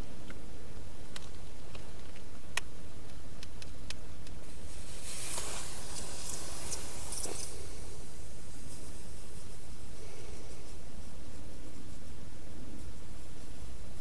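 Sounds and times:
steady low hiss: 0.0 - 14.0
scratchy rustle of tinder: 4.4 - 14.0.

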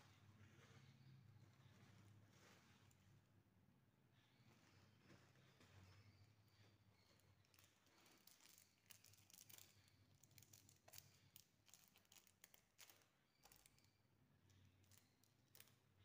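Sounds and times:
thin paper crinkling and rustling: 4.4 - 13.8
plastic wrapper crackling: 7.0 - 13.9.

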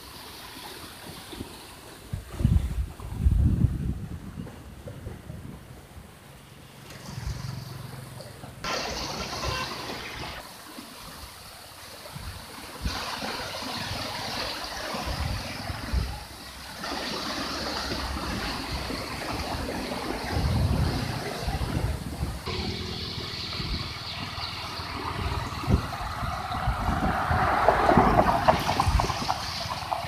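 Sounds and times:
floodwater rushing: 0.0 - 3.3, 6.2 - 30.0
wind buffeting microphone: 2.0 - 6.2, 18.0 - 30.0.

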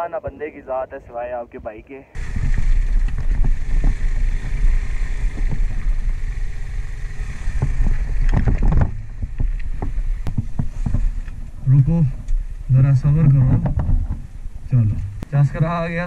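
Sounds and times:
wheels knocking on stones: 2.2 - 12.4
motorcycle engine at low speed: 2.2 - 16.0.

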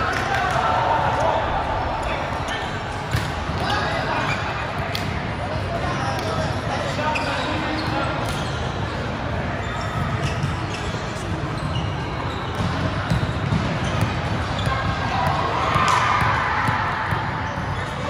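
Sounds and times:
volleyballs bouncing and struck: 3.0 - 4.0, 12.4 - 18.0.

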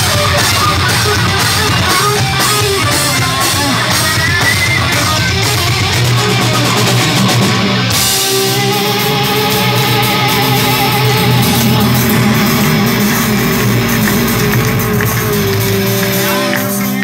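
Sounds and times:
heavy metal band playing live: 0.0 - 17.0
high held wavering note: 8.0 - 16.9.

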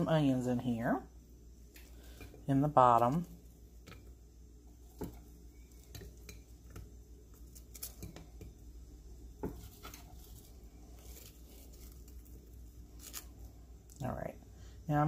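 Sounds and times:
onion rings tapping ceramic crock: 4.8 - 8.7.

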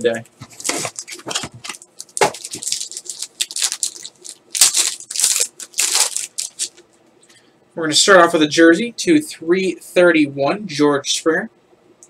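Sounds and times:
foil wrapper ripping and crackling: 0.6 - 6.8.

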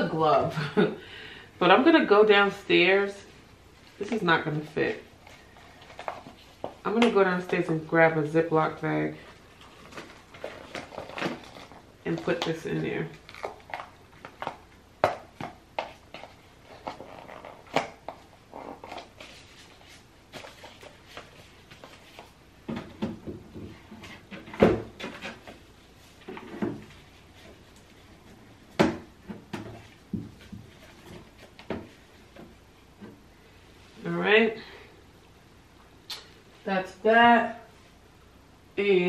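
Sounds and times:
plastic drawers and bottles knocking: 22.6 - 25.4.

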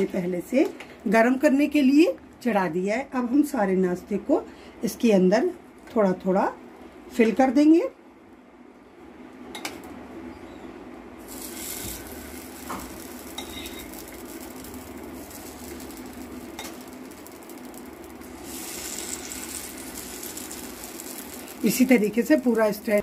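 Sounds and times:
batter sizzling in oil: 11.2 - 23.0.

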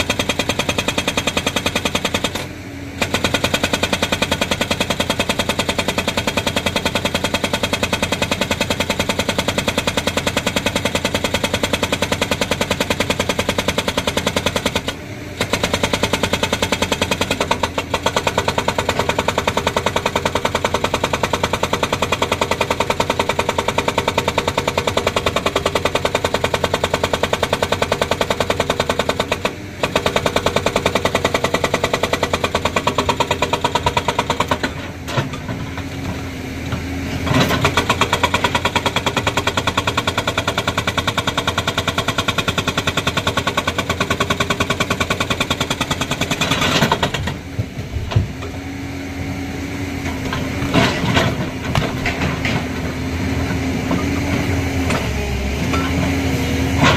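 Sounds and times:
hydraulic rock breaker hammering: 0.0 - 48.6, 49.9 - 56.9
excavator engine running: 0.0 - 56.9.

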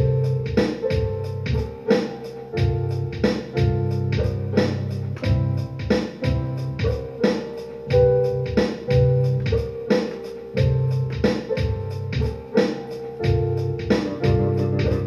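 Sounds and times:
electric bass improvisation: 0.0 - 1.6, 2.6 - 7.0, 7.9 - 9.6, 10.6 - 12.3, 13.2 - 15.0
looped bass chords: 0.0 - 15.0.

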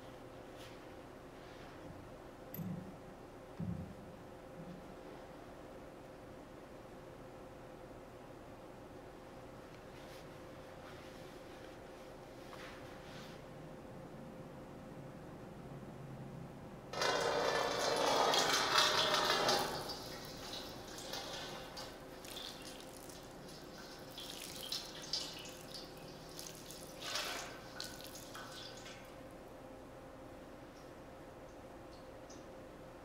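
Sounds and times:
water sloshing and dripping: 17.0 - 29.2.

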